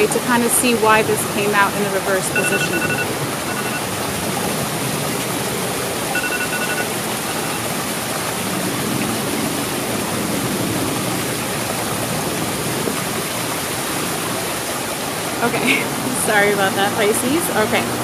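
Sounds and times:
water splashing over stones: 0:06.9 - 0:17.8.

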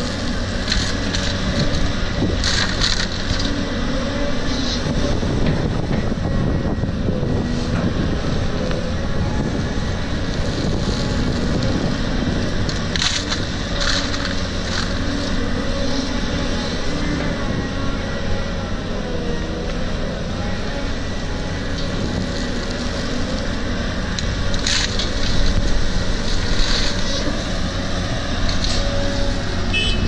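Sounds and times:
dirt and stones clattering: 0:00.0 - 0:03.6, 0:12.5 - 0:15.6, 0:24.2 - 0:27.7
excavator diesel engine running: 0:00.0 - 0:30.0.

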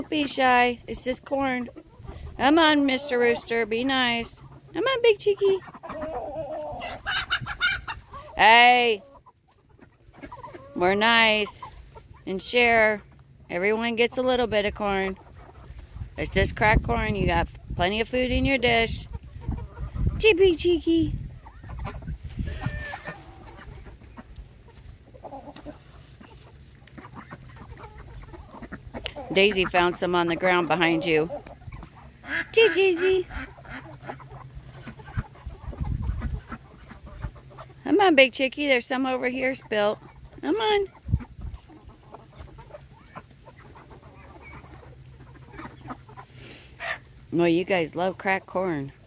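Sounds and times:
chickens clucking: 0:00.0 - 0:49.0
beaks pecking corn: 0:21.4 - 0:49.0.

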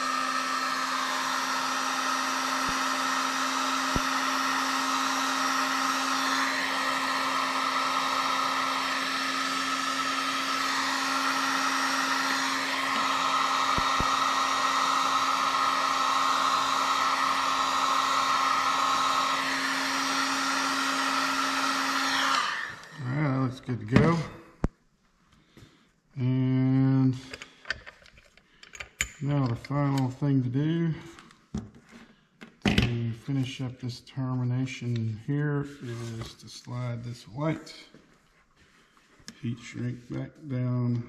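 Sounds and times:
heat gun whirring: 0:00.0 - 0:23.4.

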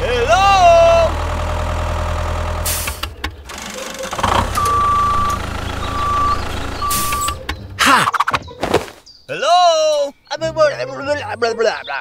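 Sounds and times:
tractor engine rumbling: 0:00.0 - 0:09.5
reversing alarm beeping: 0:04.2 - 0:07.4.

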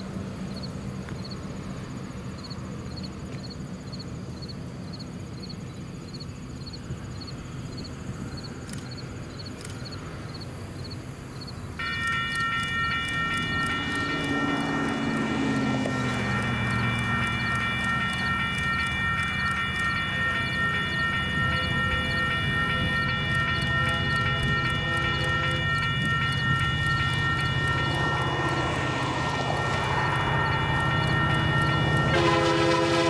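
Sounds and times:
insects chirping: 0:00.0 - 0:33.0
crossing warning bell ringing: 0:11.8 - 0:33.0.

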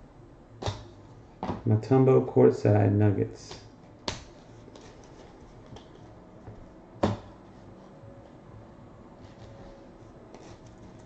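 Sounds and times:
cards rustling: 0:03.5 - 0:06.5, 0:09.2 - 0:11.0
card stack knocking on table: 0:07.0 - 0:07.3.

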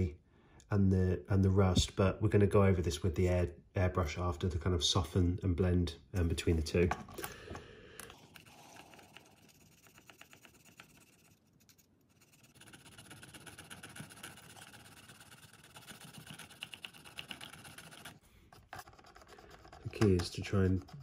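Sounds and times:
screwdriver scraping model wagon: 0:12.1 - 0:21.0.

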